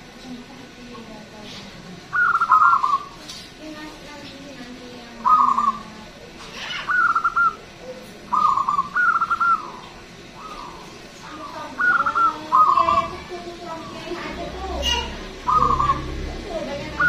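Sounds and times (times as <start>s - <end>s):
dove cooing: 2.0s - 3.3s, 4.9s - 17.0s.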